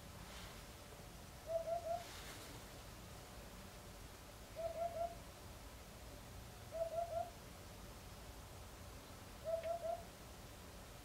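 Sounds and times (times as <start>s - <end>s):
bird soft hooting song: 1.4s - 2.1s, 4.6s - 5.2s, 6.7s - 7.4s, 9.4s - 10.1s.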